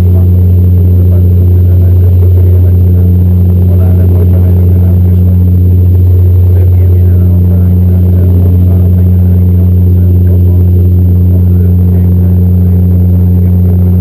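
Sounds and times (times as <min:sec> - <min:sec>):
turboprop drone in cabin: 0:00.0 - 0:14.0.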